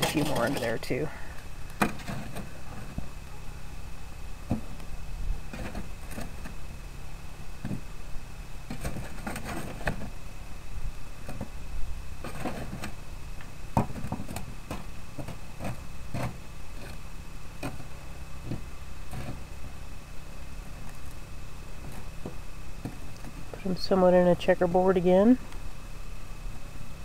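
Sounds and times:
charcoal briquettes clinking: 0:00.0 - 0:03.2.

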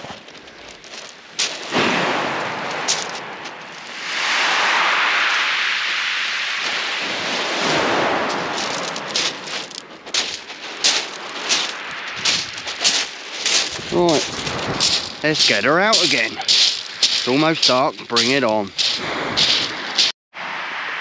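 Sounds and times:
shingle stones clicking and crunching: 0:00.0 - 0:01.8, 0:02.6 - 0:04.0, 0:08.3 - 0:20.1
wave washing up shingle beach: 0:00.0 - 0:21.0.

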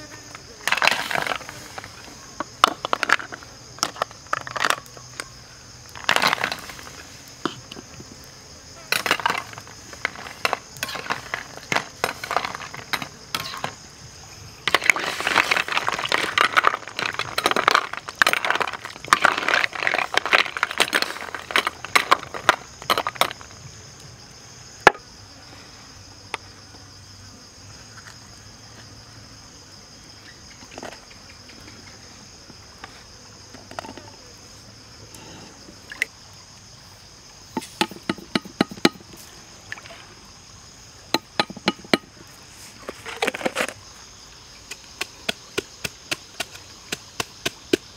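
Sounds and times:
high buzz of insects: 0:00.0 - 0:47.9
snail shells clattering in a wok: 0:14.7 - 0:23.5.

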